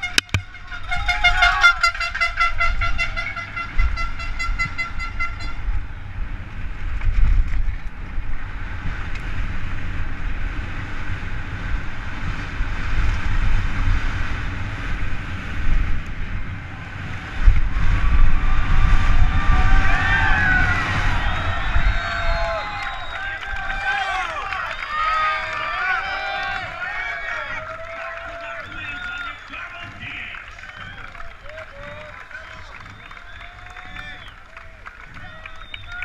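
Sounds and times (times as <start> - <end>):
crowd cheering: 0.0 - 4.8, 16.5 - 36.0
horn tooting: 0.0 - 5.9
wind rushing: 5.6 - 34.4
bike rattling on dirt track: 5.7 - 25.7, 26.6 - 36.0.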